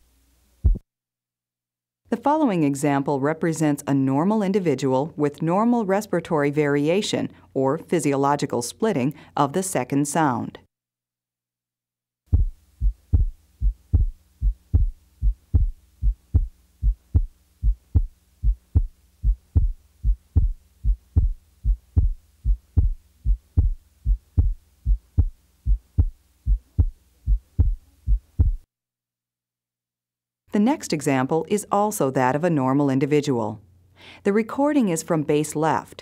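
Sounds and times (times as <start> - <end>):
faint steady hum: 0.0 - 0.8, 12.3 - 28.6
heartbeat lub-dub: 0.6 - 0.8, 12.3 - 28.7.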